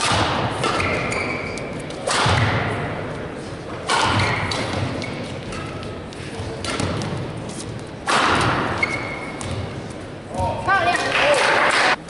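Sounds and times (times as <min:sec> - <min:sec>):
racket striking shuttlecock: 0:00.0 - 0:02.9, 0:03.8 - 0:05.9, 0:06.6 - 0:07.2, 0:08.0 - 0:09.7
shoe squeaks on court floor: 0:00.7 - 0:01.8, 0:08.6 - 0:09.6.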